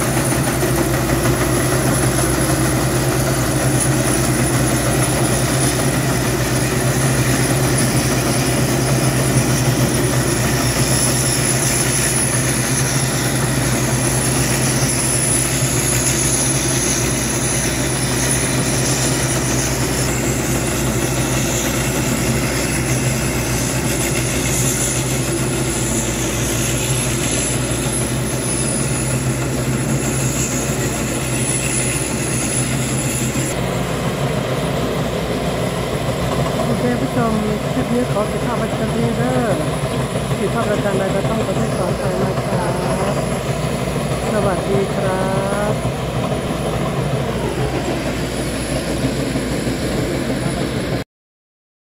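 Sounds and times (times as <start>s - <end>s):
combine harvester droning: 0.0s - 51.0s.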